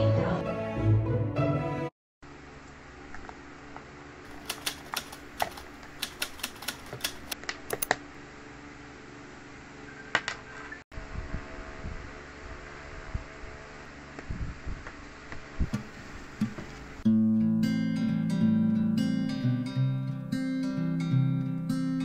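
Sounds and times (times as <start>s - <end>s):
objects clicking on desk: 4.4s - 8.0s.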